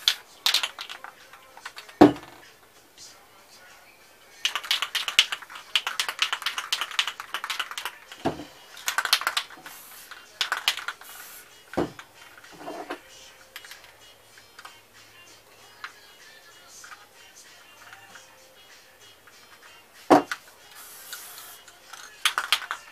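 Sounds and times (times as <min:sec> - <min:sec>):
spray can ball rattling: 0:00.0 - 0:02.4, 0:04.4 - 0:14.0, 0:19.3 - 0:22.9
short spray hisses: 0:09.6 - 0:10.2, 0:10.9 - 0:11.6, 0:20.7 - 0:21.6.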